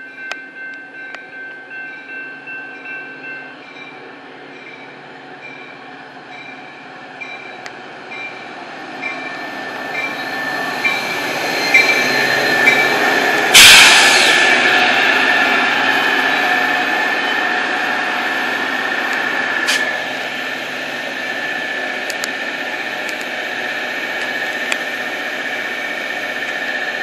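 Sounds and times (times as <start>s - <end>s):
crossing bell dinging: 0.0s - 18.2s
diesel locomotive rumble: 0.2s - 27.0s
train squeal: 1.0s - 27.0s
train rushing past: 5.1s - 27.0s.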